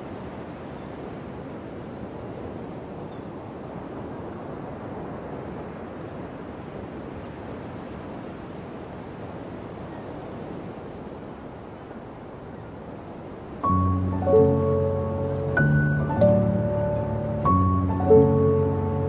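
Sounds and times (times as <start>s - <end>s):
ocean surf washing onto beach: 0.0s - 19.0s
music with sustained notes: 13.6s - 19.0s.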